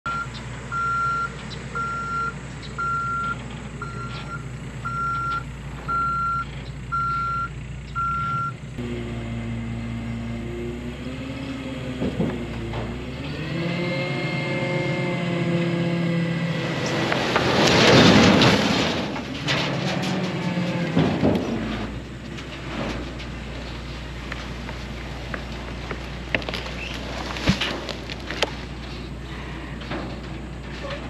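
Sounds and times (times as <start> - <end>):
truck back-up alarm beeping: 0.0 - 9.7
truck engine running: 0.1 - 31.0
engine speeding up: 4.8 - 19.5.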